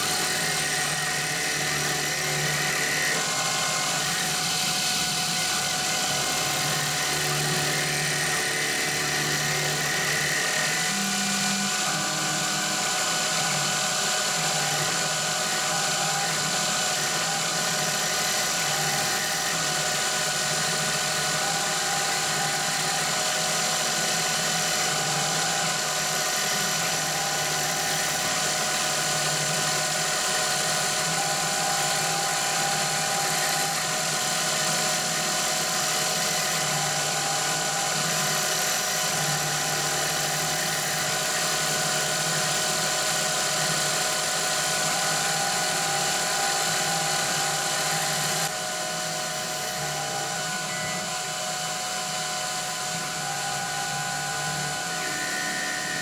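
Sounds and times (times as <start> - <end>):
constant whining tones: 0.0 - 56.0
milling machine cutting plastic: 0.0 - 56.0.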